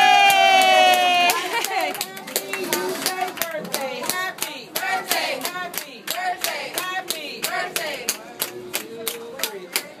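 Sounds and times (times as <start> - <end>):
people clapping a steady beat: 0.0 - 10.0
group singing: 2.3 - 8.1.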